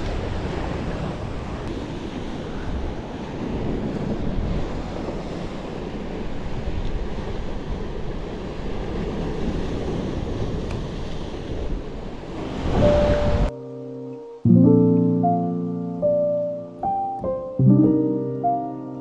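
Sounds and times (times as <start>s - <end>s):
wind noise on microphone: 0.0s - 13.5s
ocean surf on the shore: 0.0s - 19.0s.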